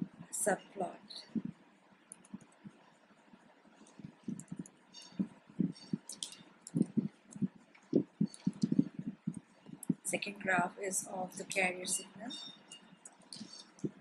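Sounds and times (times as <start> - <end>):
computer keyboard typing: 3.8 - 10.0.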